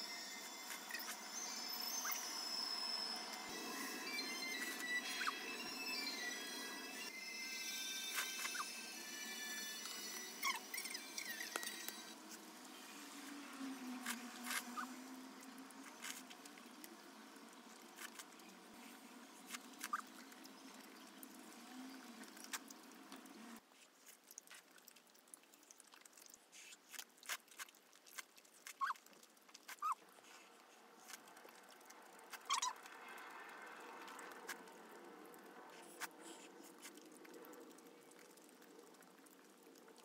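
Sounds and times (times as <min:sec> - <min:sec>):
soft chewing: 0:22.1 - 0:40.0.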